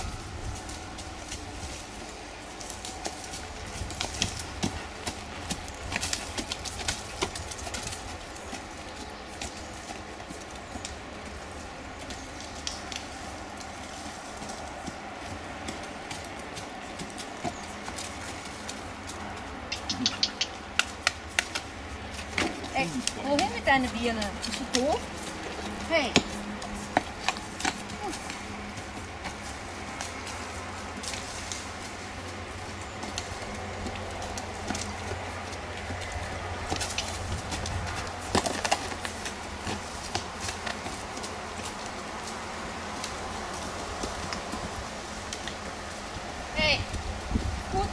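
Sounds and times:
horse hoofbeats on dirt: 0.0 - 47.9
birds calling: 14.1 - 46.6.

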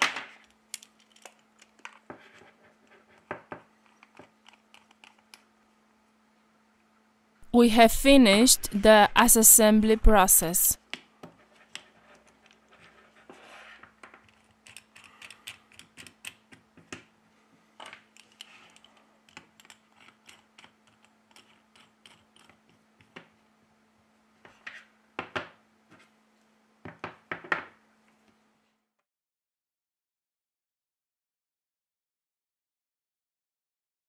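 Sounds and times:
faint steady hum: 0.0 - 27.1.

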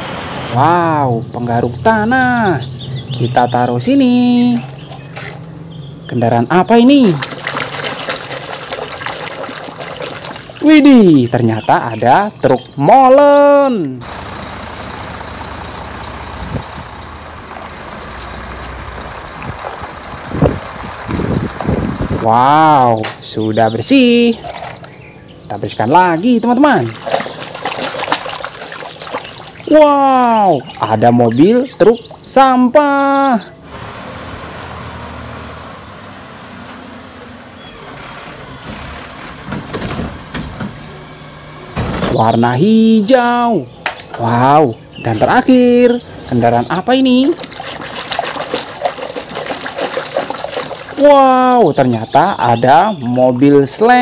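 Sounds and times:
truck diesel engine running: 14.0 - 22.7
high brake squeal: 36.0 - 39.4.

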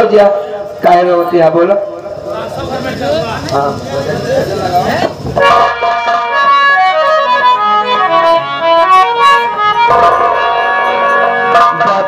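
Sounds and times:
drum strokes: 5.0 - 12.0
band melody of held notes: 5.4 - 12.0.

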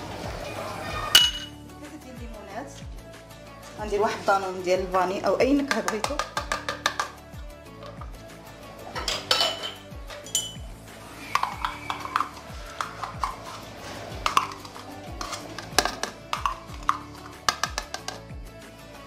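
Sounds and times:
utensils clinking against dishes: 1.1 - 1.6, 8.9 - 10.7
background music with low beat: 1.1 - 19.0.

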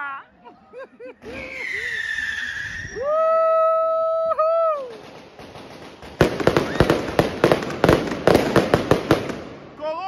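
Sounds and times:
firecrackers banging: 4.8 - 9.8.

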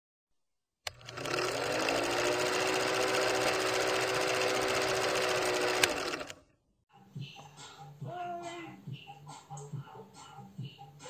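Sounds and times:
film projector clatter: 0.9 - 6.4
projector motor hum: 0.9 - 6.4.

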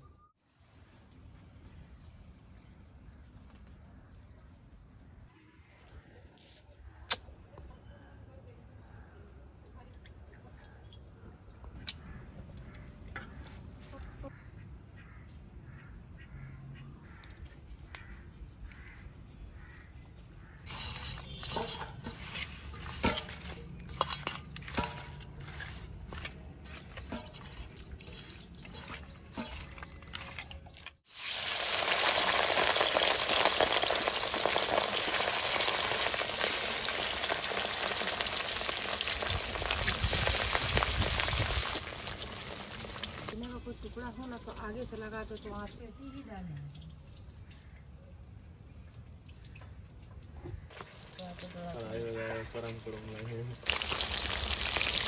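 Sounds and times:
food sizzling in hot oil: 20.7 - 24.2, 31.0 - 45.9, 50.7 - 55.0.

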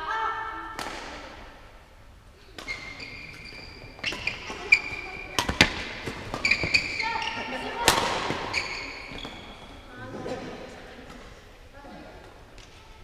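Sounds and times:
racket striking shuttlecock: 0.8 - 1.4, 4.0 - 6.9, 7.8 - 9.2
shoes squeaking on floor: 2.6 - 10.2.

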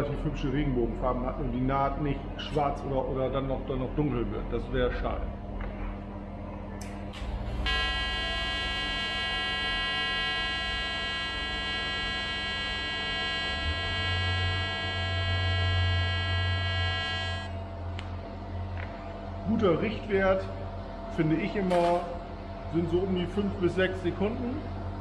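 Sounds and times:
deeper hum: 5.2 - 25.0
welding arc buzzing hum: 6.8 - 25.0.

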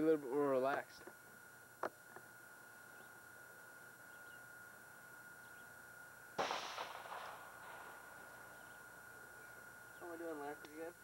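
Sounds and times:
gunshot: 6.4 - 8.1.

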